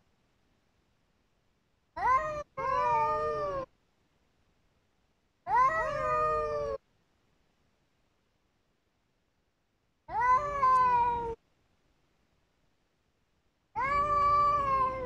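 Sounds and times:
cat yowling: 0:02.0 - 0:03.7, 0:05.5 - 0:06.8, 0:10.1 - 0:11.4, 0:13.8 - 0:15.0.

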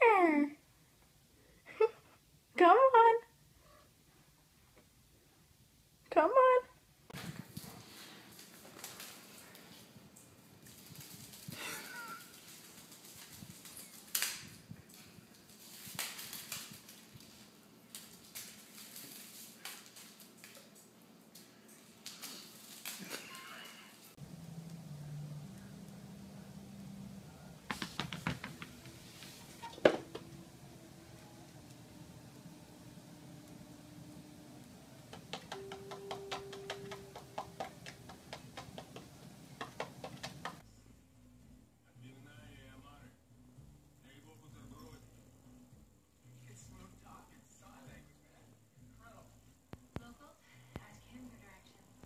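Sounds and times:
steady hum: 0:24.0 - 0:40.8
cat booties scuffing on tile: 0:27.7 - 0:30.3.

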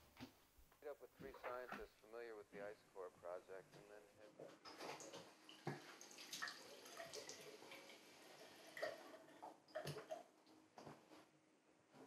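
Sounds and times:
water splashing and dripping: 0:04.7 - 0:10.3.

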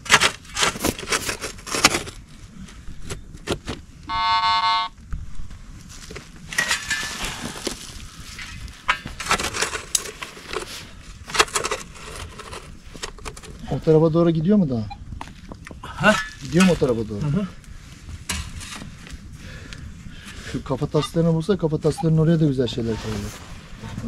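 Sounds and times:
digging tool scraping earth: 0:00.0 - 0:02.4, 0:05.8 - 0:14.0, 0:16.0 - 0:19.3, 0:20.2 - 0:24.0
metal detector beep: 0:04.1 - 0:05.0, 0:21.9 - 0:22.2
loose soil thrown out: 0:05.9 - 0:13.8.

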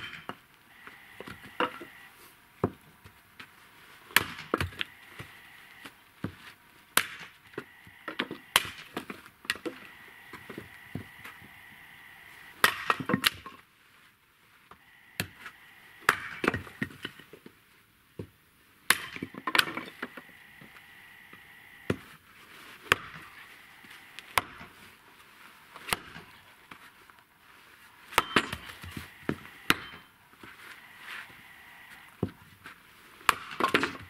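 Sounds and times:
axe chopping firewood: 0:00.0 - 0:02.0, 0:02.6 - 0:11.4, 0:12.5 - 0:13.6, 0:15.2 - 0:17.5, 0:18.2 - 0:20.2, 0:22.8 - 0:23.4, 0:24.2 - 0:24.8, 0:25.8 - 0:26.9, 0:28.0 - 0:30.6, 0:32.2 - 0:34.0.

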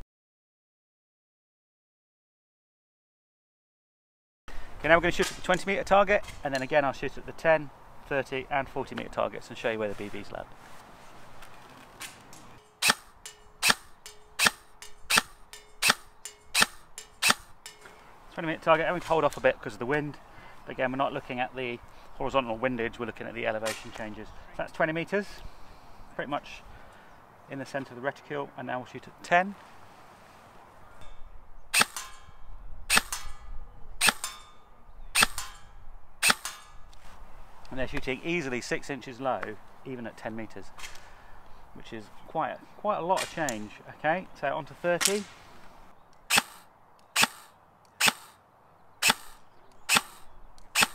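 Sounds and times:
airsoft rifle shots: 0:12.1 - 0:17.6, 0:31.7 - 0:32.2, 0:32.9 - 0:33.4, 0:34.0 - 0:34.4, 0:35.1 - 0:35.6, 0:36.2 - 0:36.8, 0:45.0 - 0:45.4, 0:46.3 - 0:48.4, 0:49.0 - 0:50.9.

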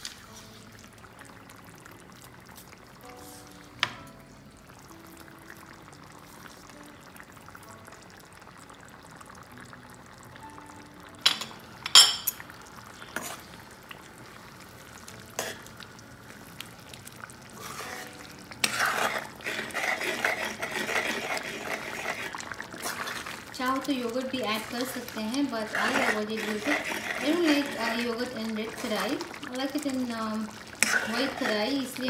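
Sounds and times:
metal spoon clinking against pan: 0:11.3 - 0:12.4
stirring thick curry gravy: 0:13.1 - 0:13.6, 0:17.2 - 0:32.0.

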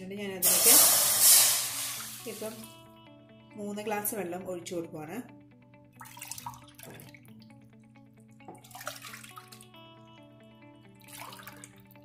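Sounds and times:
soft background music: 0:00.0 - 0:12.0
heating water hissing: 0:00.4 - 0:02.7.

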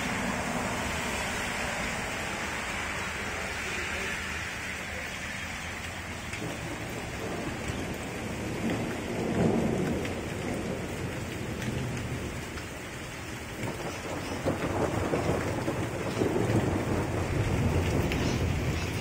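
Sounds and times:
steady rain falling: 0:00.0 - 0:19.0
thunder rumbling: 0:04.5 - 0:19.0.

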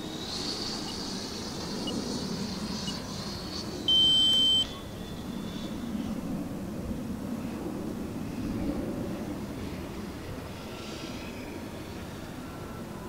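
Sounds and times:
electric ducted fan whining: 0:00.0 - 0:13.0
loud electronic beep: 0:03.9 - 0:04.7.

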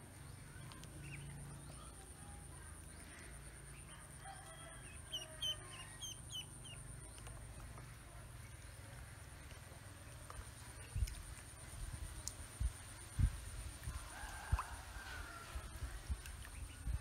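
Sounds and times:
ducklings peeping: 0:04.8 - 0:07.7.

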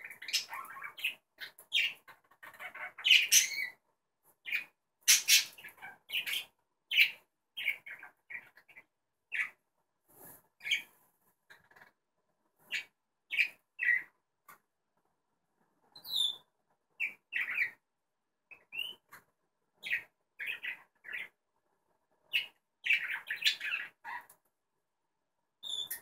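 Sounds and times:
budgerigars chirping: 0:00.0 - 0:03.8, 0:04.5 - 0:09.6, 0:12.7 - 0:14.1, 0:17.0 - 0:17.8, 0:19.8 - 0:21.3, 0:22.3 - 0:24.3.

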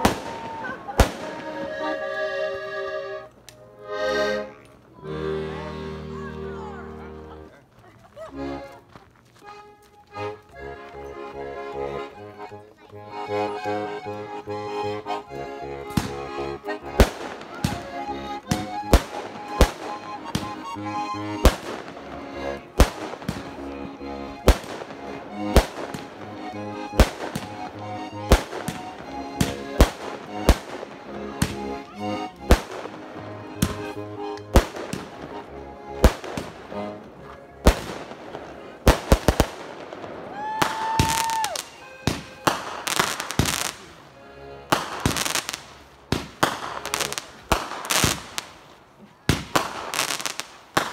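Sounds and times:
fireworks bangs: 0:00.0 - 0:01.7, 0:17.0 - 0:20.6, 0:21.4 - 0:22.1, 0:22.7 - 0:23.7, 0:28.3 - 0:31.6, 0:37.6 - 0:43.9, 0:44.7 - 0:48.5, 0:49.3 - 0:50.9
music with steady beat: 0:13.1 - 0:37.9.

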